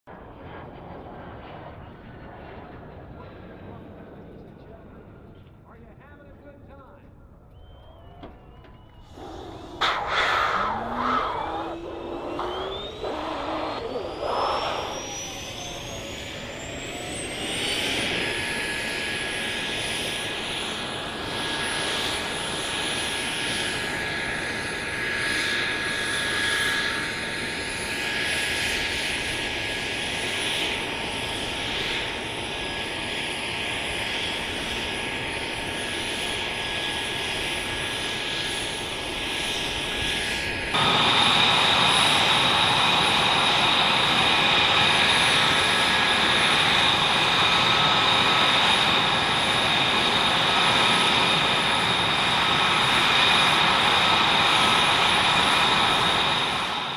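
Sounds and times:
jet engine whine: 0:00.1 - 0:56.9
lower whine: 0:07.3 - 0:56.9
rush of air: 0:09.0 - 0:15.7.

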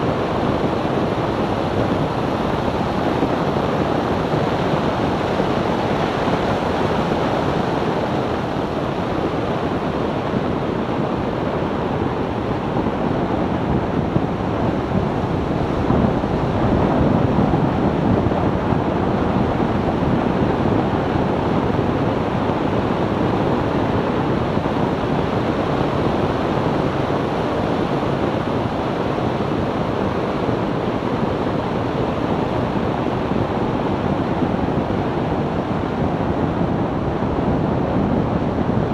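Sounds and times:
wind and tyre noise: 0:00.0 - 0:38.9
wind buffeting microphone: 0:00.0 - 0:38.9.

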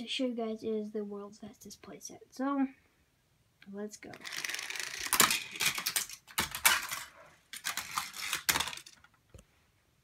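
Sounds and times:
plastic toy pieces clattering: 0:04.1 - 0:09.2.

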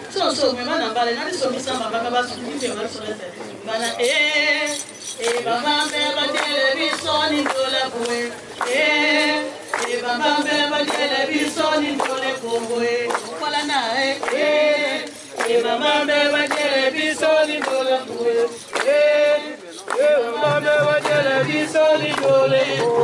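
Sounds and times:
woman leading group singing: 0:00.1 - 0:23.0.

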